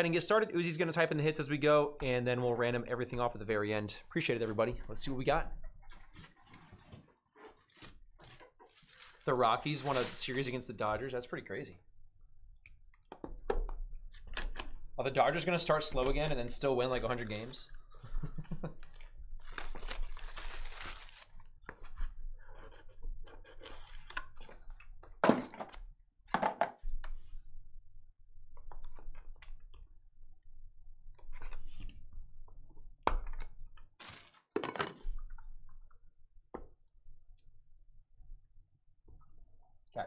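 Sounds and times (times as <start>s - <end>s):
plastic wrapper tearing and crinkling: 7.6s - 10.4s, 18.8s - 21.5s, 34.0s - 34.5s.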